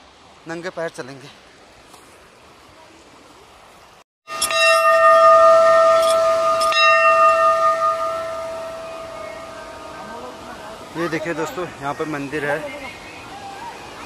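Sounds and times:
temple bell ringing: 4.3s - 11.6s.

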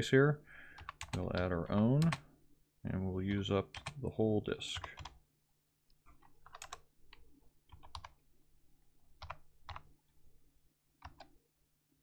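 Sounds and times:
computer keyboard typing: 0.7s - 2.2s, 3.7s - 4.0s, 4.8s - 5.2s, 6.1s - 8.2s, 9.2s - 10.0s, 11.0s - 11.4s.

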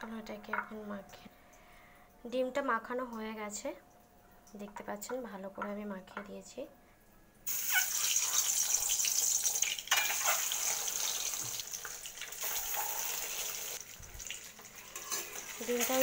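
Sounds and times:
eggs sizzling in hot oil: 7.4s - 16.0s.

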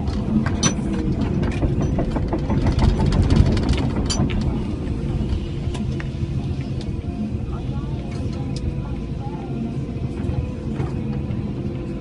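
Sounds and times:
rattling clicks: 0.0s - 5.0s
excavator diesel engine: 0.0s - 12.0s.

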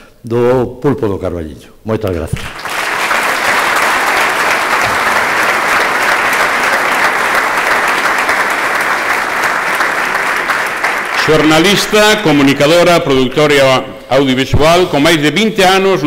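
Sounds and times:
audience applauding: 2.4s - 12.9s.

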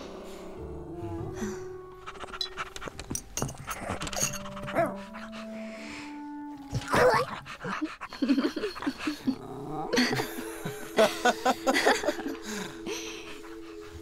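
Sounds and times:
music with held chord: 0.0s - 14.0s
cartoon dog vocal sounds: 6.8s - 7.8s
man and woman laughing: 7.7s - 13.5s.

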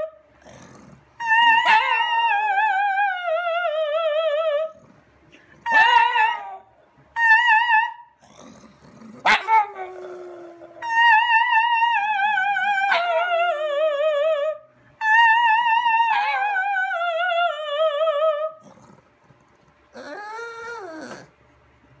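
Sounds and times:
dog howling: 1.2s - 4.8s, 5.6s - 8.2s, 9.2s - 18.9s, 20.0s - 21.3s.

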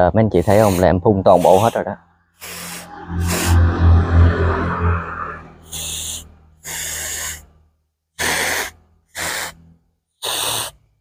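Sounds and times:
mist sprayer bursts: 0.4s - 1.8s, 2.4s - 3.5s, 5.7s - 7.4s, 8.2s - 9.6s, 10.2s - 10.8s
low hum: 2.6s - 6.6s.

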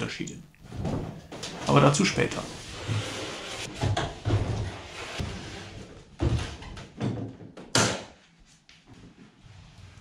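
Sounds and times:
wood scraping: 0.7s - 6.6s
wooden thuds and knocks: 6.2s - 8.1s.

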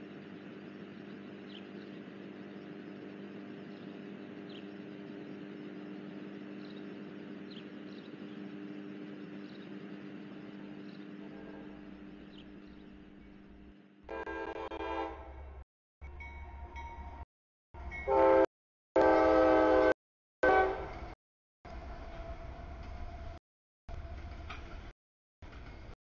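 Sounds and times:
steady low hum: 0.0s - 15.6s.

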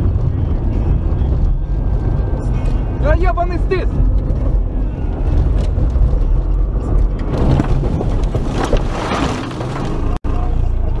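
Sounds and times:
car rumbling on road: 0.0s - 11.0s
snow hitting car: 7.3s - 10.2s.

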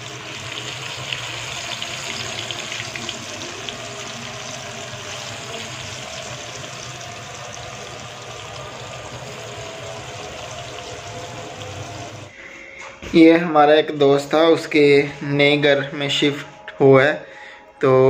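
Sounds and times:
fish deep-frying in oil: 0.0s - 12.3s.

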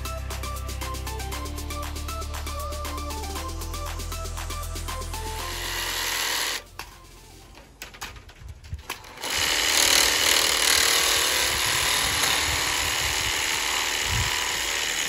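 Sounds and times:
jigsaw cutting pipe buzz: 4.4s - 6.7s, 8.9s - 15.0s.

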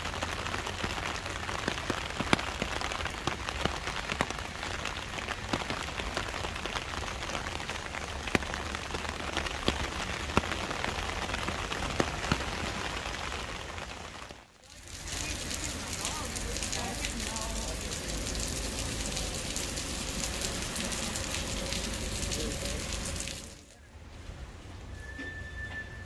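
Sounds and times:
rain on wet paving: 0.0s - 24.9s.

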